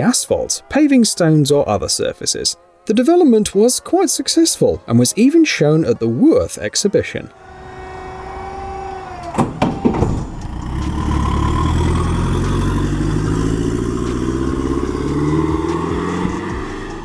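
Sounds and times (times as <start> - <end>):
whine winding down: 7.2 - 17.0
van engine accelerating: 7.3 - 17.0
knocks: 9.3 - 10.4.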